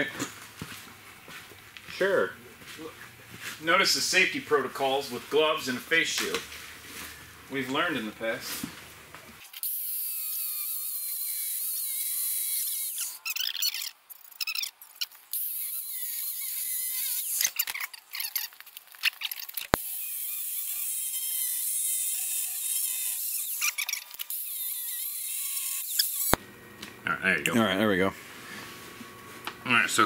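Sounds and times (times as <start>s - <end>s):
angle grinder cutting metal: 9.4s - 14.6s, 15.3s - 18.5s, 19.2s - 26.4s.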